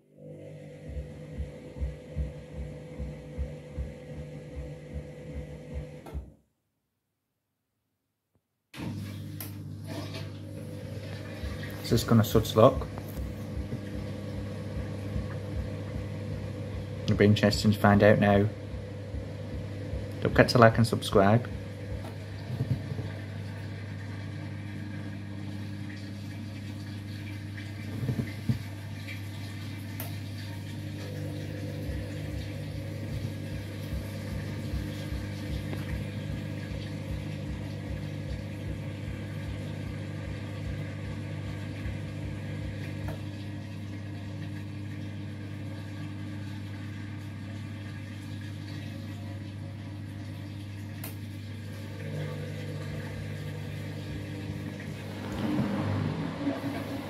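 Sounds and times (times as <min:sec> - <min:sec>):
washing machine motor hum: 0:00.0 - 0:06.5, 0:08.8 - 0:57.0
washing machine knocks: 0:21.5 - 0:23.2.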